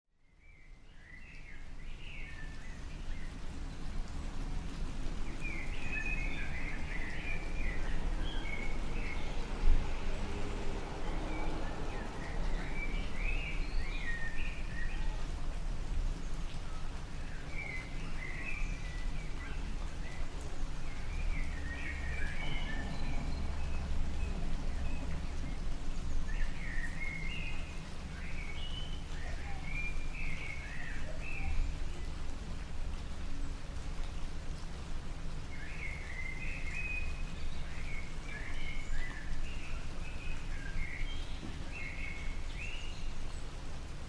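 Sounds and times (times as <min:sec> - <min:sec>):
light rain falling: 0:00.1 - 0:44.0
small birds chirping: 0:00.2 - 0:09.4, 0:16.2 - 0:32.4, 0:35.4 - 0:43.8.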